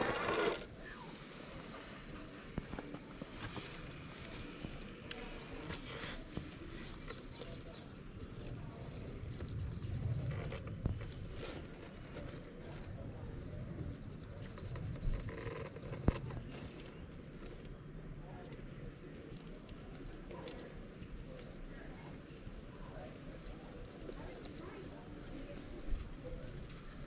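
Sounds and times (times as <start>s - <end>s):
tyres scraping on stone: 0.0s - 0.7s
low rumble: 8.2s - 17.2s.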